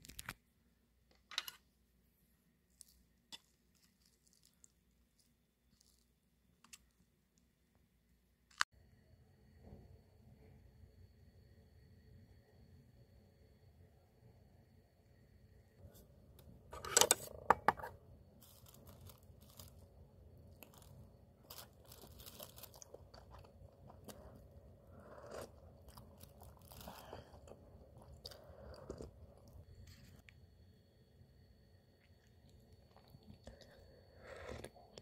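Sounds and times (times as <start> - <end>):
plastic bag crinkling: 18.4 - 23.6, 25.8 - 27.5.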